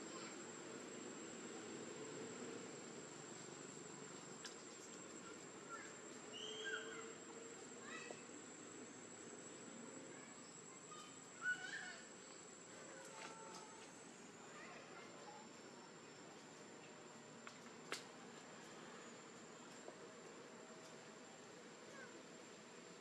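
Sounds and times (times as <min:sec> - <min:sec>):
high insect drone: 0:00.0 - 0:15.0
short high chirping calls: 0:06.3 - 0:07.0.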